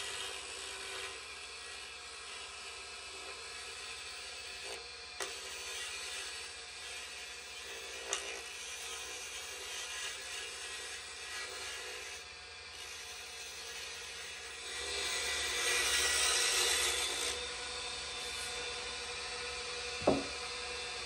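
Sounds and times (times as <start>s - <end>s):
lathe motor hum: 0.0s - 21.0s.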